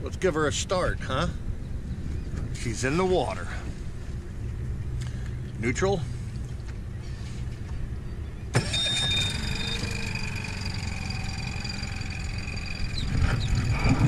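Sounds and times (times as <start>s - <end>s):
outboard motor starting and idling: 8.5s - 14.0s
high steady tone: 8.6s - 14.0s.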